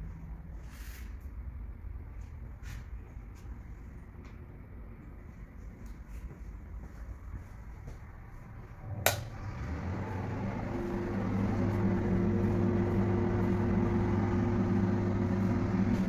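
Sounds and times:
low machine hum: 3.6 - 16.0
sharp click: 9.0 - 9.3.

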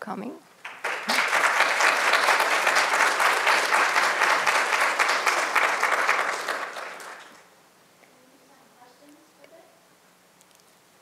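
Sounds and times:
audience applauding: 0.6 - 7.5.

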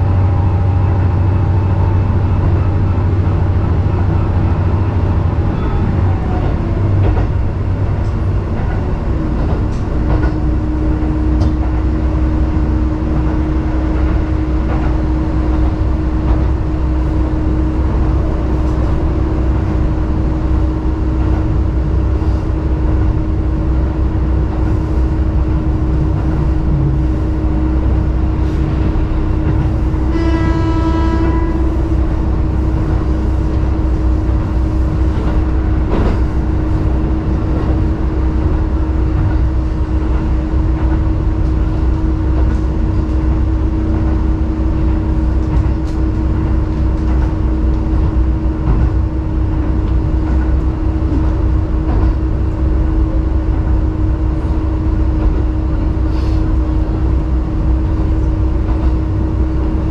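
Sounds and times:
railcar engine and wheels rumbling: 0.0 - 59.9
train horn blast: 29.9 - 32.4.

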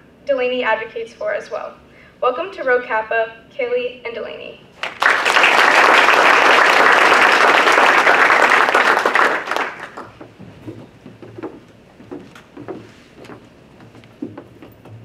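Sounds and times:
audience applauding: 4.8 - 10.2
faint knocks: 10.1 - 15.0.

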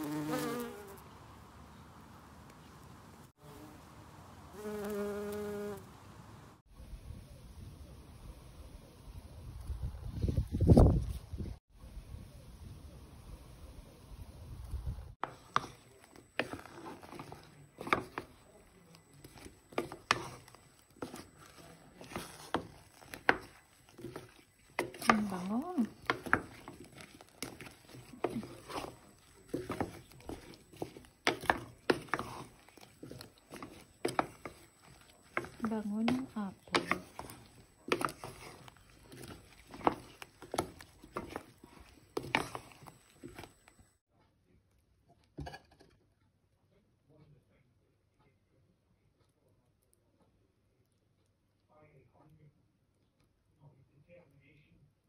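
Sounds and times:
spatula scraping metal pot: 15.2 - 43.7.

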